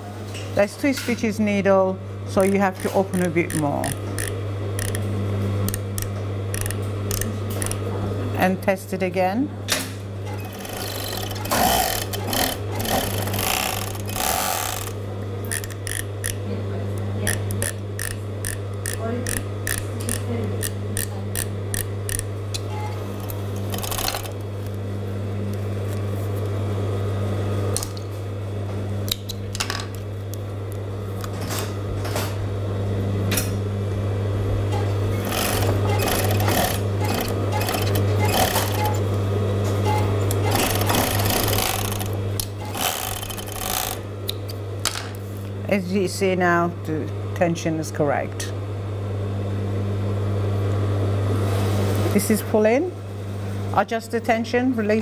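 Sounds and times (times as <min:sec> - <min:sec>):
overlocker motor hum: 0:02.0 - 0:08.4, 0:10.1 - 0:29.2, 0:33.8 - 0:44.4
machine stitching and clicks: 0:02.4 - 0:05.1, 0:05.7 - 0:07.8, 0:10.3 - 0:16.4, 0:17.3 - 0:20.8, 0:23.2 - 0:24.4, 0:34.7 - 0:39.0, 0:39.9 - 0:44.0.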